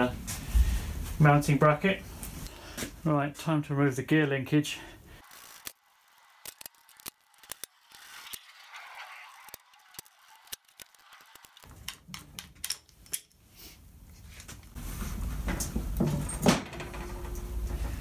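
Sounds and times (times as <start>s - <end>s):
loose steel parts clinking: 6.4s - 13.5s.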